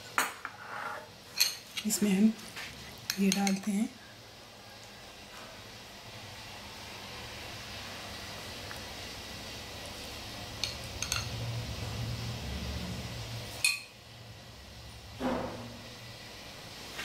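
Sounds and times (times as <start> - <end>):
spoon clinking against bowl: 3.1 - 3.8, 10.6 - 11.4, 13.6 - 14.0.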